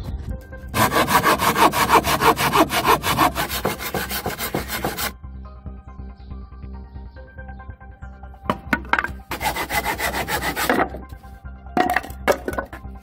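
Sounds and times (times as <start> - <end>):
background music: 0.0 - 13.0
hand saw cutting wood: 0.8 - 5.2, 9.3 - 11.0.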